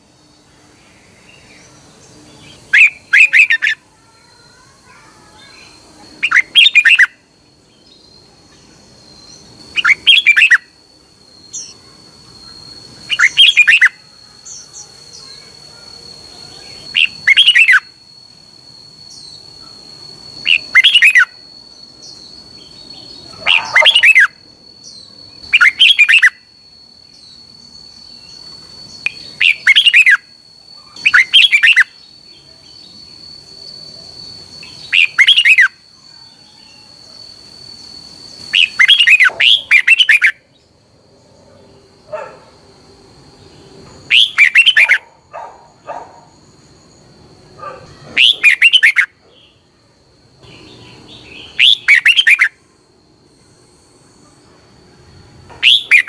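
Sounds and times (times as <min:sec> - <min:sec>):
faint high-pitched whine: 0:00.0 - 0:56.0
bird singing warbled phrases: 0:00.6 - 0:18.0, 0:19.0 - 0:33.2, 0:34.4 - 0:37.0, 0:38.1 - 0:40.7, 0:43.5 - 0:46.2, 0:47.6 - 0:49.7, 0:50.4 - 0:52.6, 0:55.6 - 0:56.0.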